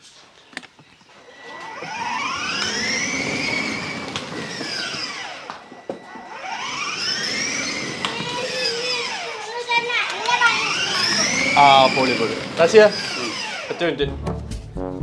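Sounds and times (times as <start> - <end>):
electric motor whine: 1.1 - 14.0
plastic wheels rumbling: 1.2 - 14.0.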